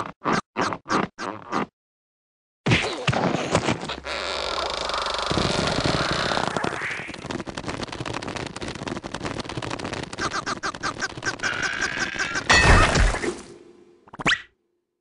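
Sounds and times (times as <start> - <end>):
cartoon squeaky straining chatter: 4.0 - 6.6
fast crackling rattle of clicks: 5.7 - 11.6.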